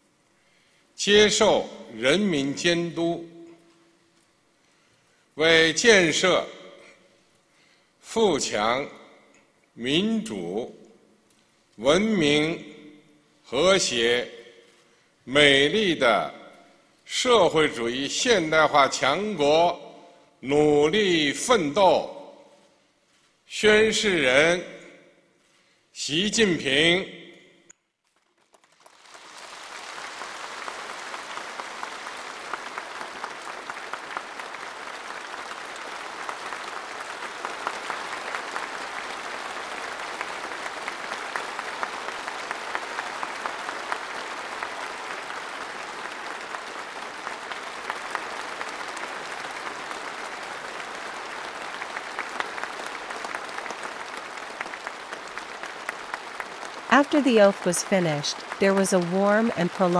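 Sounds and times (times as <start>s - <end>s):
crowd applauding: 28.1s - 59.9s.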